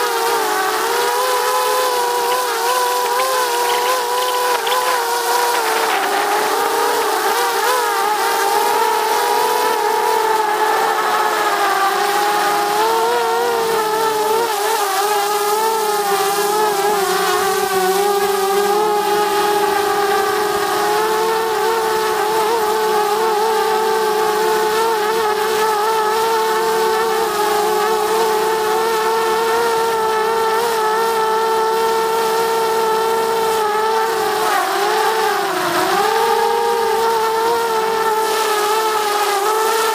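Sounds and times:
drone propellers whining: 0:00.0 - 0:29.2.

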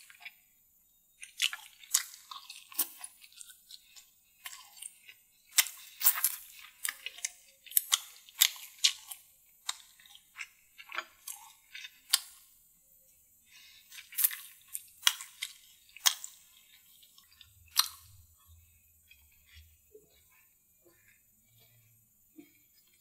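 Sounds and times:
small crunches: 0:01.2 - 0:12.4
wet chewing: 0:01.2 - 0:12.5, 0:13.5 - 0:21.8.

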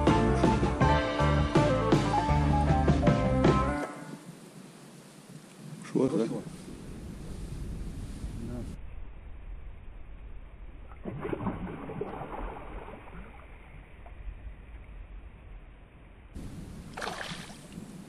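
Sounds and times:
low wind rumble on microphone: 0:04.1 - 0:18.0
lake water splashing: 0:10.9 - 0:14.4, 0:16.4 - 0:18.0.

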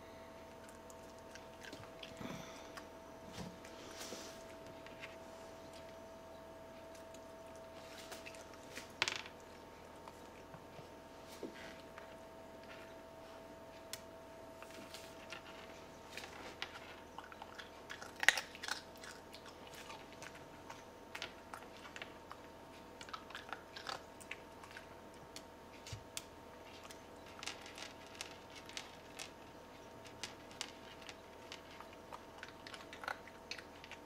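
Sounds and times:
dog crunching dry kibble: 0:00.5 - 0:03.8, 0:06.8 - 0:10.7, 0:14.6 - 0:34.0.

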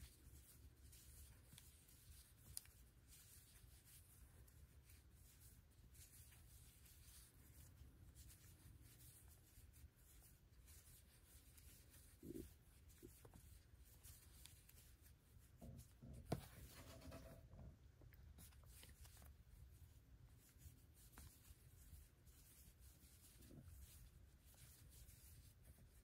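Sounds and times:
crochet hook rubbing yarn: 0:00.0 - 0:17.4.

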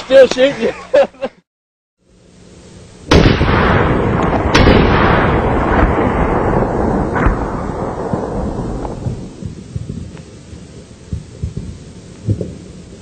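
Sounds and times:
loud booms with rumble: 0:03.1 - 0:10.2.

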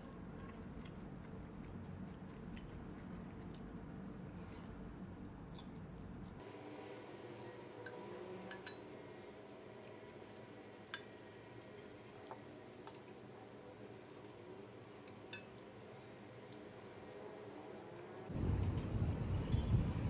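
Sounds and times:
metal spoon clinking ceramic: 0:08.4 - 0:09.0, 0:15.2 - 0:15.6.

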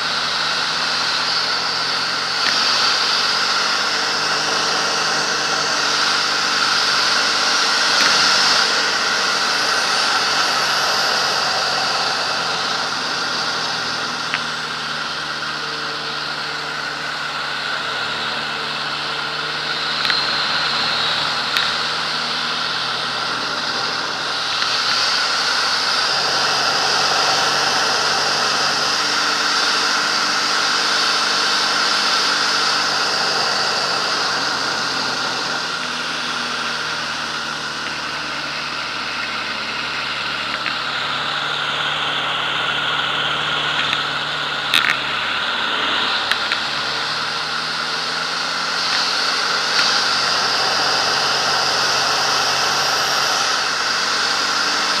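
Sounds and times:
plane engine and propeller: 0:00.0 - 0:55.0
sharp clicks: 0:43.6 - 0:45.2.

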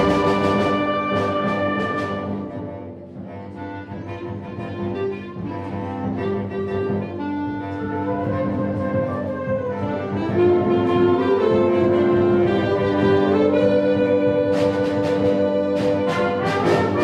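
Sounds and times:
concert band playing chords: 0:00.0 - 0:04.2, 0:08.7 - 0:17.0.

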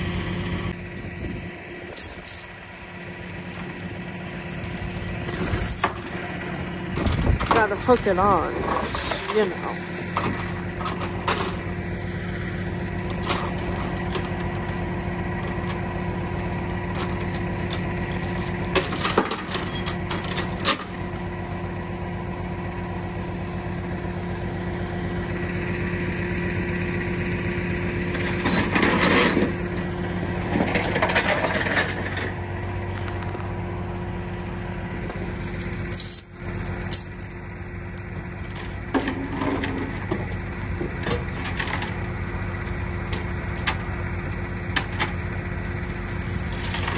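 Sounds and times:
truck engine running: 0:00.0 - 0:46.9
chain rattling: 0:00.9 - 0:09.6, 0:13.0 - 0:14.3, 0:17.0 - 0:20.9, 0:28.0 - 0:29.5, 0:35.0 - 0:37.4, 0:38.0 - 0:40.1, 0:41.0 - 0:42.2, 0:45.6 - 0:46.9
metal clanks: 0:00.9 - 0:11.6, 0:28.0 - 0:32.4.

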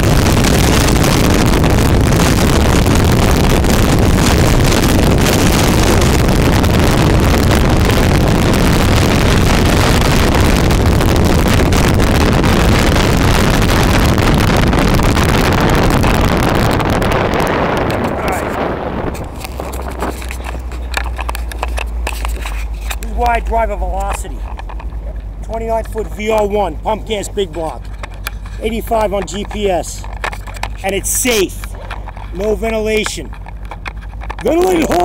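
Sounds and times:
boat engine and hull noise: 0:00.0 - 0:35.0
wind buffeting microphone: 0:00.0 - 0:35.0.

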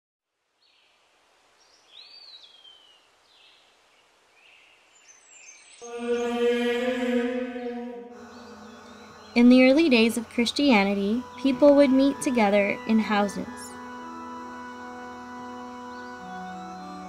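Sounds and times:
high chirping glides: 0:05.8 - 0:17.0
person chanting a long note: 0:05.8 - 0:17.0.

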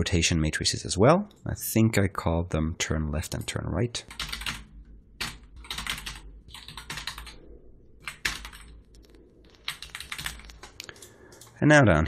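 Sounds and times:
typing on computer keyboard: 0:04.0 - 0:07.4, 0:08.0 - 0:11.6.

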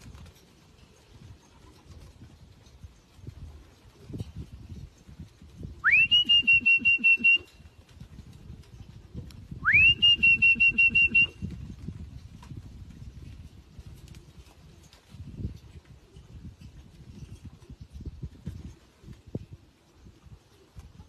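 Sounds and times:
pea whistle trilling: 0:05.8 - 0:07.5, 0:09.6 - 0:11.4.

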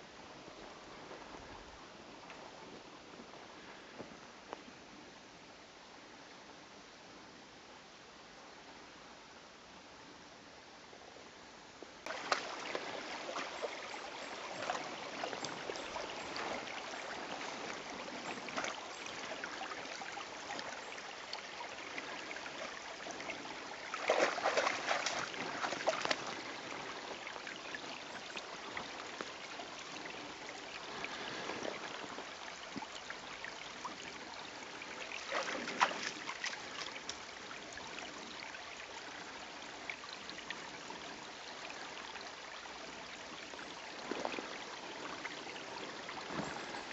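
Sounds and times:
stream trickling: 0:12.0 - 0:46.9
dog splashing through water: 0:24.0 - 0:26.3.

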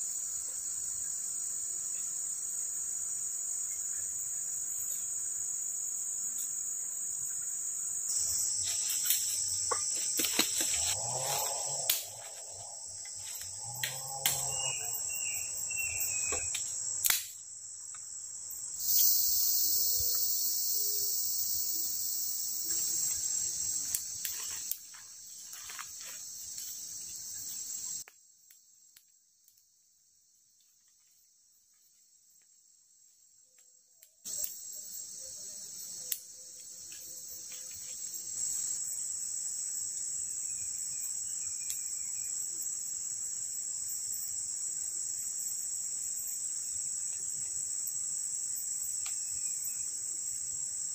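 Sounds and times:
forest insects chorus: 0:00.0 - 0:50.9
sharp snaps and clicks: 0:11.8 - 0:12.2, 0:16.5 - 0:17.4, 0:34.0 - 0:34.6.

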